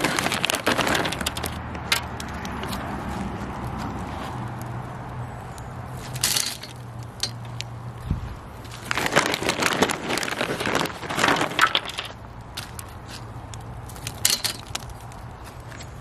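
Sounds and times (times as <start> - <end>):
bag rustling and crinkling: 0.0 - 1.6, 8.6 - 13.3
wood chips dropped onto charcoal: 0.0 - 2.5, 6.0 - 7.7, 8.6 - 15.6.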